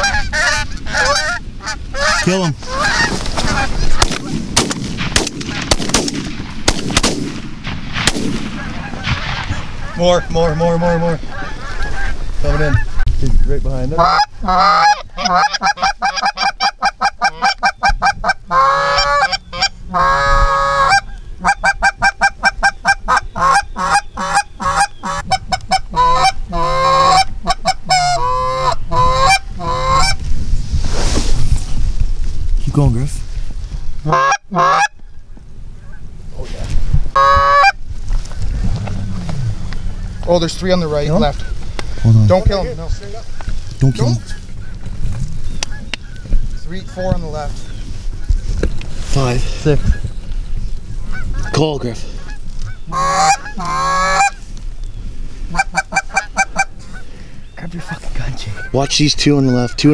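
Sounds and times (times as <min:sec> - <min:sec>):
goose call honks: 0:00.0 - 0:04.2, 0:13.9 - 0:30.2, 0:34.0 - 0:35.0, 0:37.1 - 0:37.8, 0:51.0 - 0:54.4, 0:55.5 - 0:57.1
rough rustling: 0:00.0 - 0:16.8, 0:29.4 - 0:34.1, 0:34.9 - 0:59.1
shotguns firing: 0:04.0 - 0:09.8.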